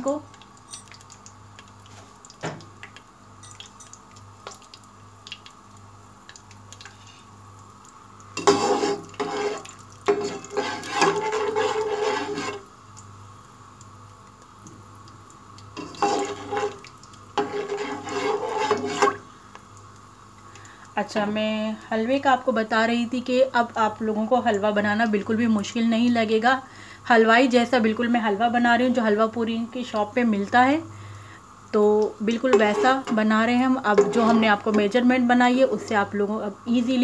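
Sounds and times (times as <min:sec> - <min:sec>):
nuts crackling in ghee: 0:00.0 - 0:21.9
spoon scraping nuts in a pan: 0:08.4 - 0:12.7, 0:15.8 - 0:16.8, 0:17.4 - 0:19.2, 0:32.4 - 0:34.9.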